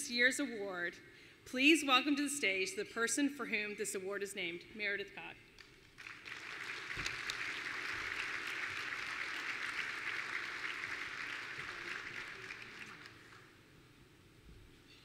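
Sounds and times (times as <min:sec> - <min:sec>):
audience applauding: 0:05.6 - 0:13.5.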